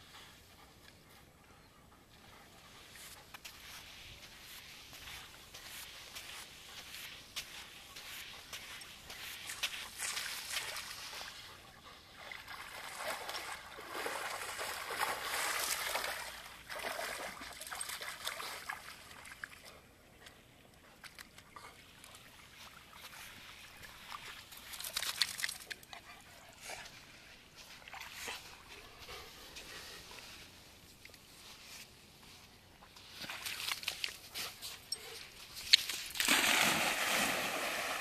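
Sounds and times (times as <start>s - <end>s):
dog splashing in shallow water: 12.1s - 19.7s, 35.8s - 38.0s.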